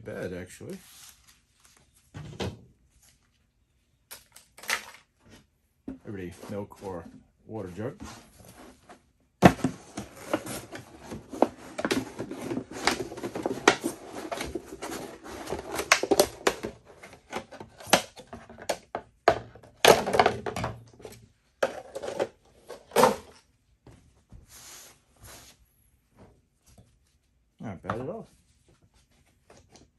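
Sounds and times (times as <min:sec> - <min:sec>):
plastic crackles and knocks: 0:09.4 - 0:23.3.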